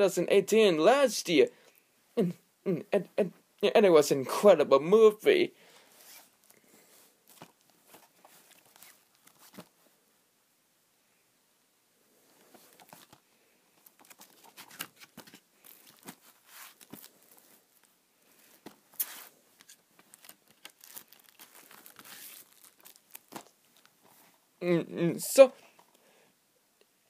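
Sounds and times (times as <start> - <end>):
plastic case crinkling and clicking: 12.6 - 13.2, 13.8 - 17.1, 18.6 - 24.1.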